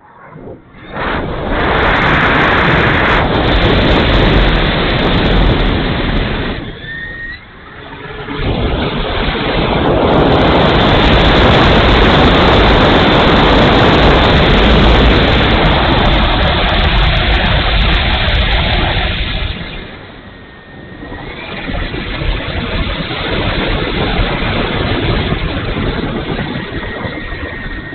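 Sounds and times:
airflow and propeller rush: 0:00.0 - 0:27.9
faint whistle: 0:06.7 - 0:07.6.

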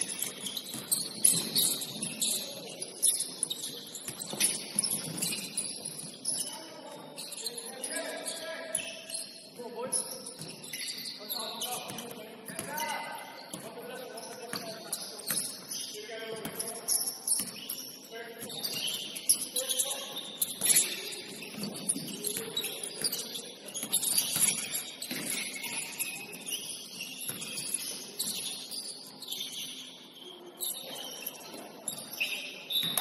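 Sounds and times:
shoes squeaking on gym floor: 0:00.0 - 0:33.0.

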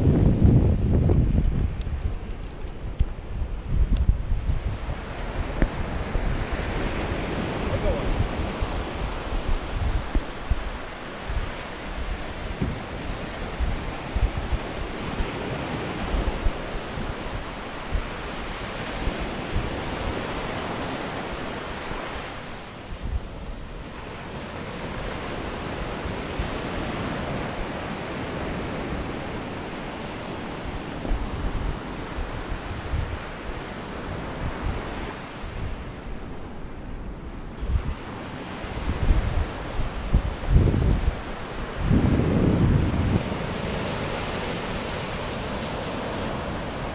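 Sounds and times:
surf washing up a beach: 0:00.0 - 0:46.9
wind buffeting microphone: 0:00.0 - 0:46.9.

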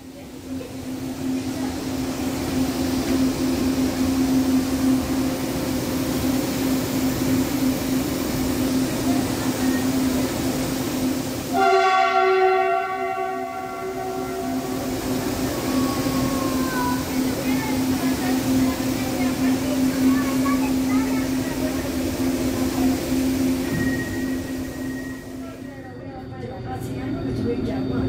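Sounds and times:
train electrical hum: 0:00.0 - 0:28.0
multi-tone train horn: 0:11.5 - 0:16.6.

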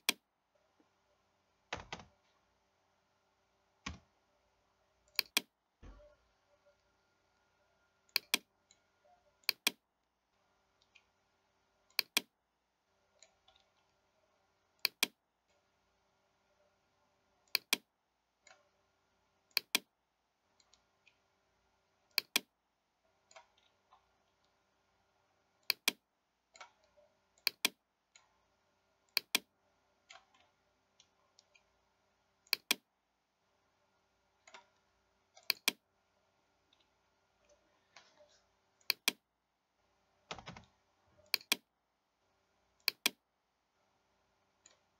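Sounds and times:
computer mouse clicking: 0:00.0 - 0:00.2, 0:05.1 - 0:05.5, 0:08.1 - 0:08.8, 0:09.4 - 0:09.8, 0:11.9 - 0:12.3, 0:14.8 - 0:15.6, 0:17.4 - 0:18.7, 0:19.5 - 0:19.9, 0:22.1 - 0:22.5, 0:25.6 - 0:28.3, 0:29.1 - 0:31.7, 0:32.4 - 0:32.9, 0:34.4 - 0:35.9, 0:38.8 - 0:39.2, 0:40.3 - 0:41.7, 0:42.8 - 0:43.2
faint steady hum: 0:00.0 - 0:44.9.

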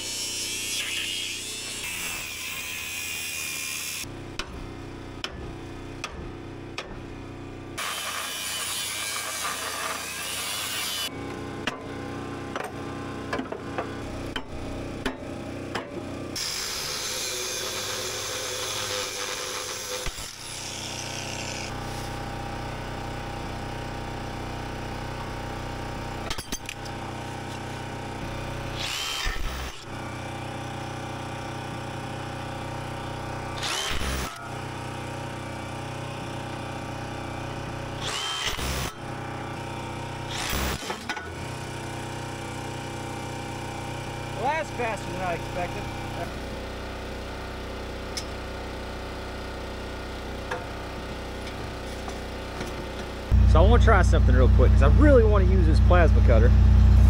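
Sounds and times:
angle grinder cutting metal: 0:00.0 - 0:04.1, 0:07.8 - 0:11.1, 0:16.3 - 0:22.2, 0:26.3 - 0:30.4, 0:32.6 - 0:35.2, 0:37.5 - 0:46.7
sharp metal knocks: 0:12.6 - 0:16.0.

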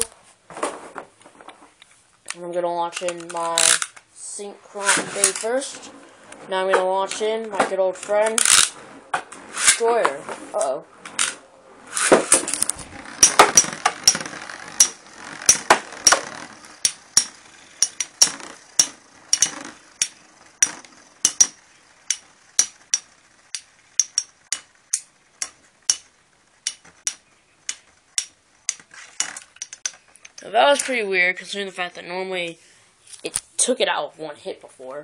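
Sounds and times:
spinning whir: 0:11.0 - 0:29.9
spinning tops clacking: 0:11.2 - 0:30.9.

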